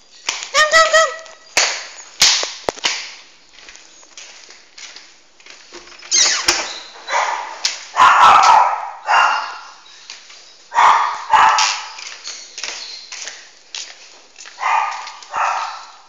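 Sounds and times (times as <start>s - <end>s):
dog barking: 7.1s - 9.8s, 10.7s - 12.0s, 14.6s - 16.0s.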